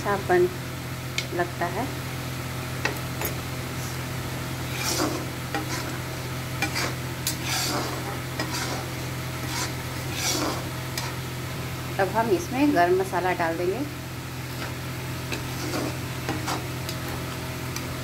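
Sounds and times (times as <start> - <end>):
steady low hum: 0.0 - 18.0
spatula scraping a pan: 4.5 - 11.3, 14.5 - 16.9.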